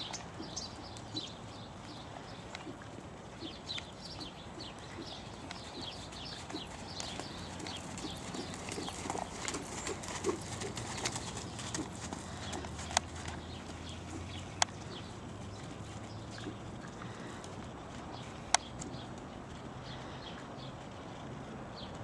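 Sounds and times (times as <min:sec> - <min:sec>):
birds chirping: 0:00.0 - 0:22.0
horse hoofbeats on sand: 0:03.4 - 0:20.9.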